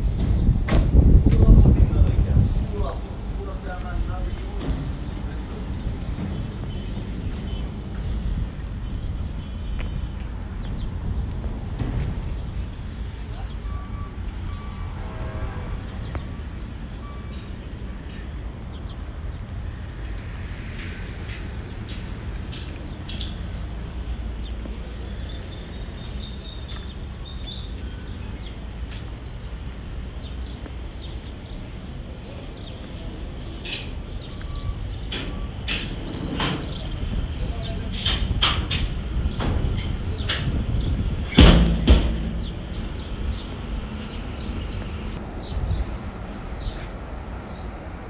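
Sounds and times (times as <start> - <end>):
heavy thump: 41.3 - 43.0.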